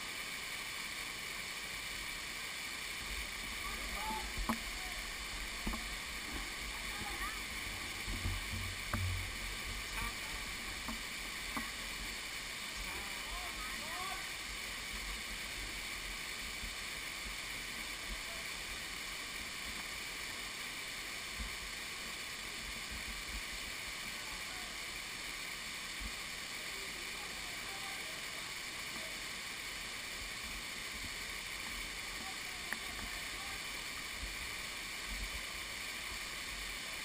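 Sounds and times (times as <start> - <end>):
waterfall rushing: 0.0 - 37.0
low rumbles: 3.5 - 11.2.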